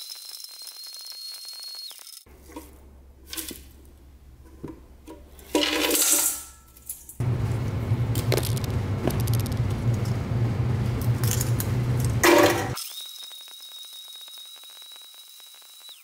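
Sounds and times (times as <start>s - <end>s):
blender motor whining: 0.0s - 2.2s, 12.8s - 16.0s.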